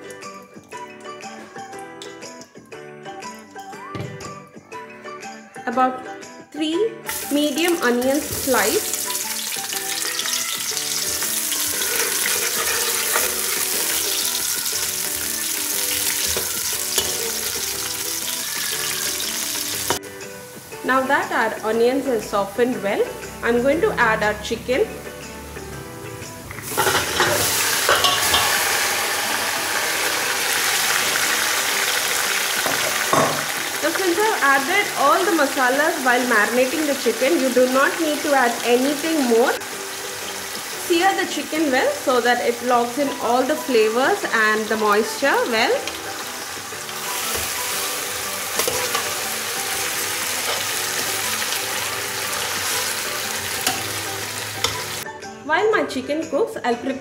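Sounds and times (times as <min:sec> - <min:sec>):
chicken sizzling in ghee: 0:07.1 - 0:22.2, 0:26.5 - 0:55.0
pot clattering: 0:09.7 - 0:14.3, 0:15.9 - 0:18.0, 0:26.5 - 0:31.2, 0:32.5 - 0:33.7, 0:48.4 - 0:49.4
metal spoon scraping a pot: 0:11.8 - 0:13.6, 0:26.7 - 0:28.8.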